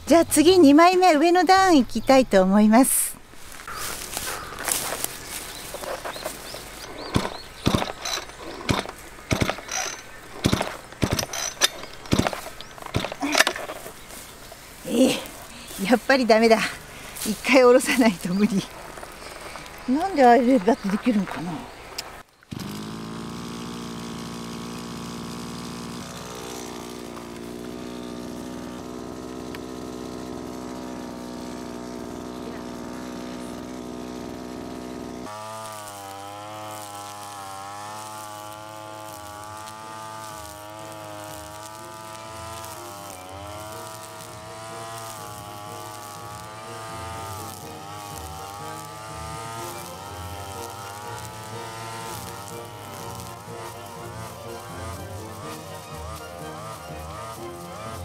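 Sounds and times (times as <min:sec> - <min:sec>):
brush cutter engine running: 0:02.8 - 0:58.0
recoil starter pulls ratcheting: 0:05.7 - 0:14.0.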